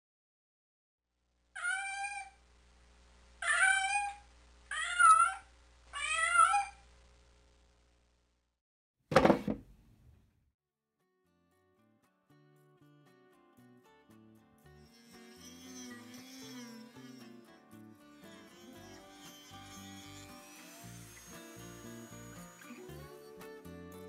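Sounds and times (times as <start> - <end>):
cat meowing: 1.6 - 2.3, 3.4 - 6.8
short sharp thump: 9.1 - 9.8.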